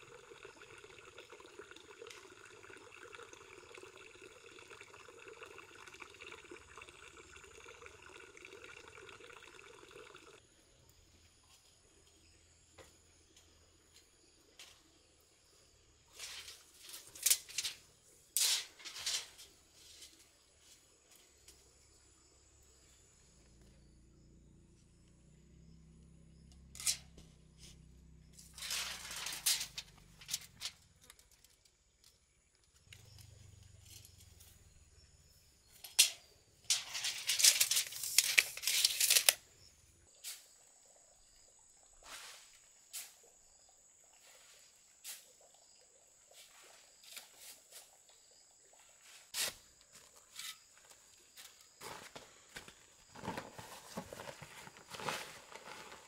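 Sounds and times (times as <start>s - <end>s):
sand poured onto plastic sheet: 16.1s - 17.8s, 28.6s - 30.4s
tools scraping soil: 16.1s - 17.8s, 18.4s - 20.3s, 26.8s - 27.2s, 28.4s - 30.8s, 35.9s - 39.4s, 49.2s - 50.9s, 53.1s - 56.0s.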